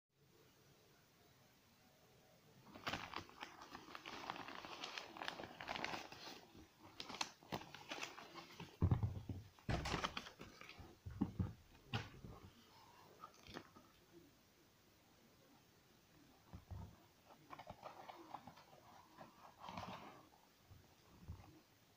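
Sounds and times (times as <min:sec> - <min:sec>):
plastic bag crinkling: 0:02.7 - 0:08.8
box thumping down: 0:08.8 - 0:10.3.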